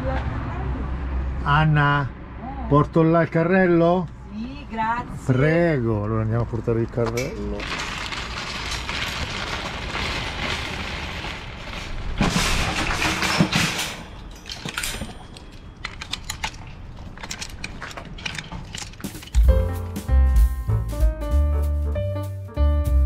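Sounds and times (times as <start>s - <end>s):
shopping trolley rattling: 6.7s - 19.6s
metal clatter with thumps: 12.1s - 19.7s
light clicks and rattles: 13.8s - 19.6s.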